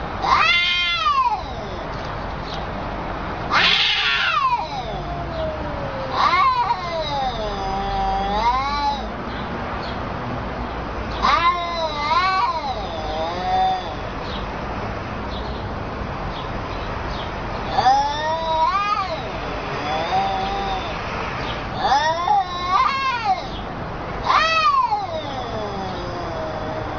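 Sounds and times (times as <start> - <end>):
cats yowling: 0.0 - 2.6, 3.5 - 9.2, 11.1 - 14.1, 17.6 - 26.9.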